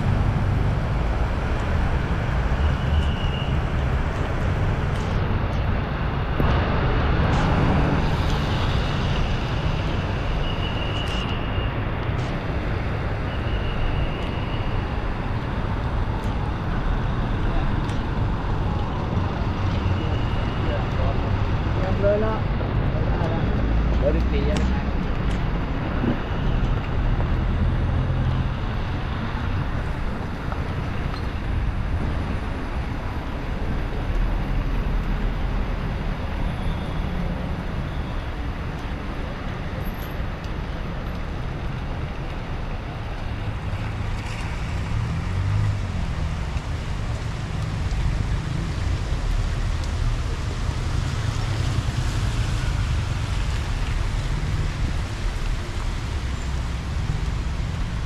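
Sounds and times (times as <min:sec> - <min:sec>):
rain: 0:00.0 - 0:58.0
traffic on wet street: 0:00.0 - 0:58.0
wind rumbling on microphone: 0:22.4 - 0:58.0.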